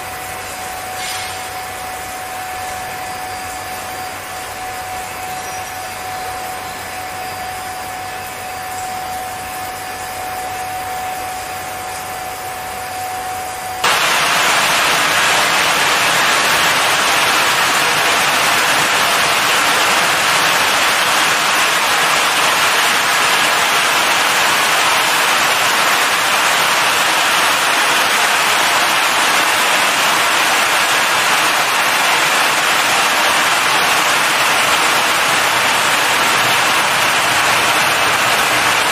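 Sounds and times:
blower fan hum with whine: 0.0s - 38.9s
air blast rushing hiss: 1.0s - 1.6s, 13.8s - 27.2s.

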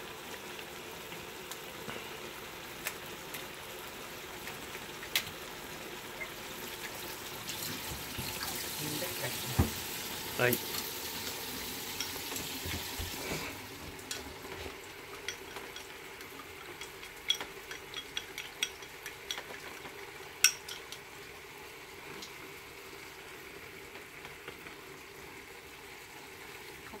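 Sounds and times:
onions sizzling in a pan: 0.0s - 27.0s
chopsticks beating eggs in bowl: 11.2s - 21.0s.

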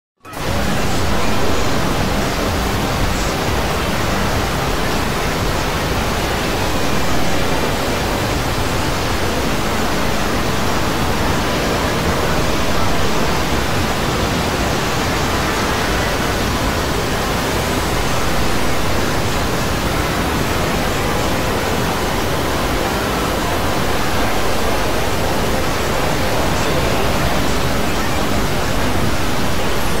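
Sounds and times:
dense hiss-like wash of noise: 0.3s - 30.0s.

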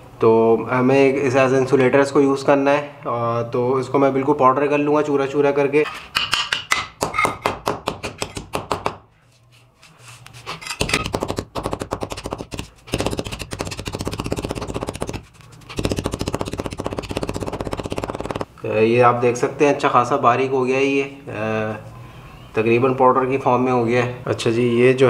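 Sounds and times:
sledgehammer crushing ceramic tile: 10.5s - 18.5s.

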